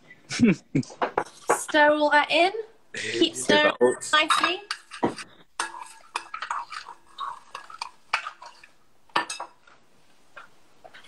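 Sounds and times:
spoon stirring in a bowl: 1.2s - 1.7s, 4.1s - 9.8s.

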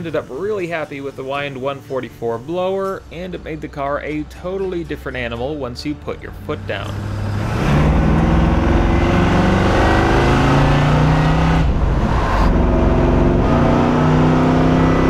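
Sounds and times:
supercharged car engine accelerating: 6.4s - 15.0s.

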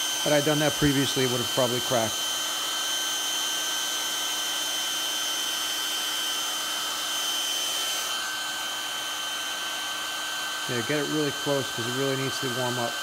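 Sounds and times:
hair dryer running: 0.0s - 13.0s.

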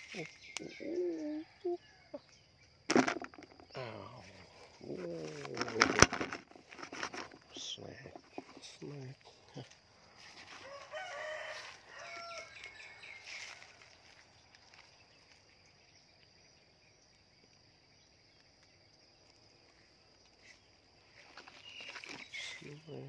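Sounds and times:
rooster crowing: 10.5s - 13.9s.

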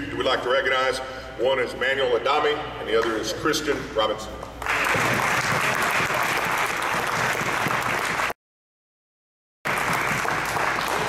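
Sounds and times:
audience applauding: 4.6s - 8.4s, 9.7s - 11.0s.

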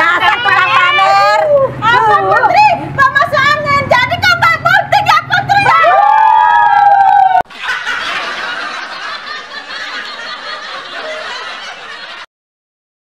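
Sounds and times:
women laughing: 0.0s - 1.3s, 7.3s - 12.3s.

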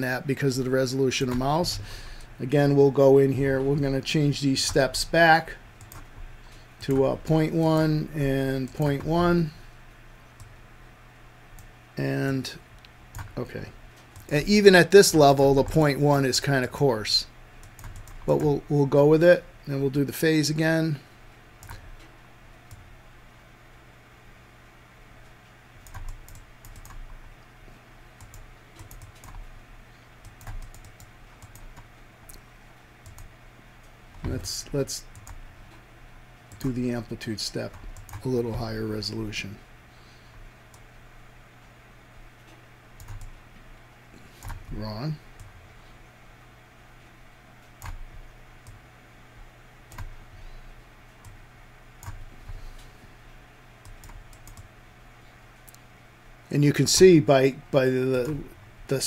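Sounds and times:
steady low hum: 0.0s - 59.0s
computer mouse clicking: 5.8s - 6.2s, 12.8s - 13.4s, 17.6s - 18.6s, 21.6s - 22.1s, 25.8s - 27.2s, 28.2s - 29.5s, 30.2s - 32.4s, 33.0s - 34.4s, 35.1s - 35.8s, 37.7s - 38.3s, 42.5s - 43.4s, 44.4s - 44.8s, 47.6s - 48.8s, 49.9s - 50.2s, 52.0s - 52.9s, 53.8s - 54.7s.

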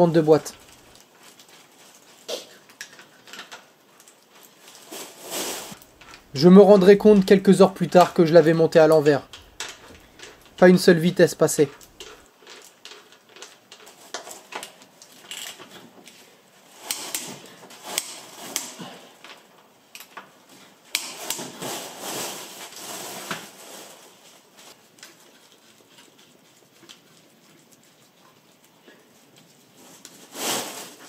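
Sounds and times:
parts and tools clicking and knocking: 2.6s - 4.3s, 5.8s - 6.3s, 8.9s - 10.7s, 11.7s - 16.2s, 16.8s - 21.7s.

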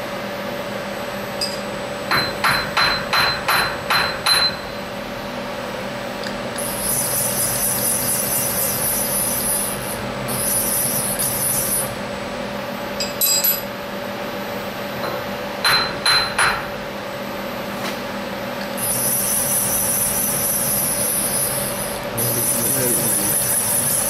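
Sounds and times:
milling machine drive hiss: 18.8s - 24.0s.

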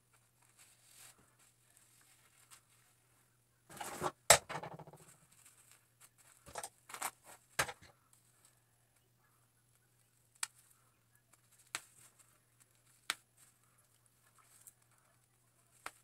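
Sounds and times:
plastic cap rustling: 3.7s - 7.9s.

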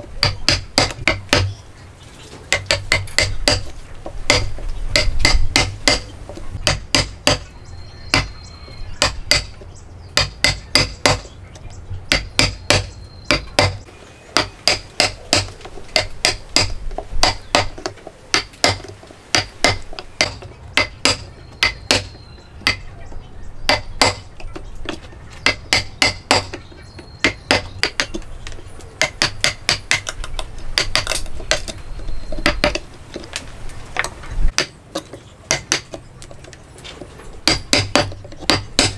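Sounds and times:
mallet striking chisel into wood: 0.2s - 1.6s, 2.5s - 3.7s, 4.3s - 7.5s, 8.1s - 8.4s, 9.0s - 9.6s, 10.2s - 11.3s, 12.1s - 13.8s, 14.4s - 22.9s, 23.7s - 24.6s, 25.4s - 26.6s, 27.2s - 28.2s, 29.0s - 32.8s, 34.5s - 34.8s, 35.5s - 36.0s, 37.4s - 38.9s.

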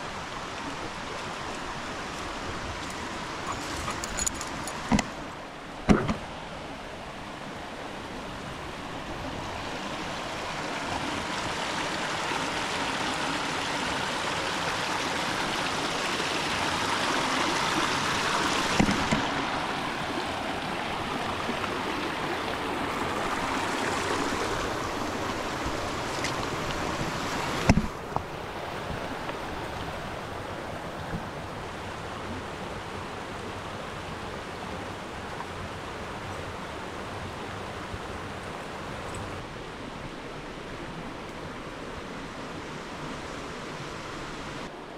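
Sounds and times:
stream rushing over stones: 0.0s - 44.9s
sharp knocks: 5.9s - 6.2s.

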